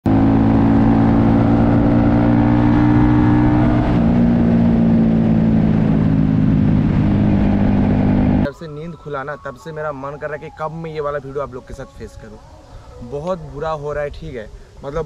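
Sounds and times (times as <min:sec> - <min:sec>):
vehicle engine rumbling: 0:00.0 - 0:08.5.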